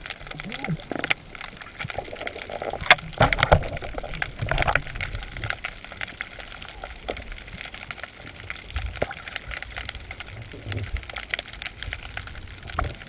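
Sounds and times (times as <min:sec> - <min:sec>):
water sloshing and gurgling: 0:00.0 - 0:13.0
sharp clicks and knocks: 0:02.6 - 0:05.7.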